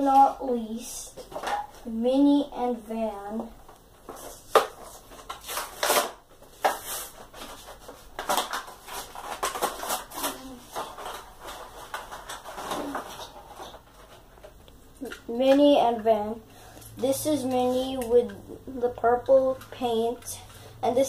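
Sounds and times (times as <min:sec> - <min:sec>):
plastic packaging crinkling: 0:04.1 - 0:15.2.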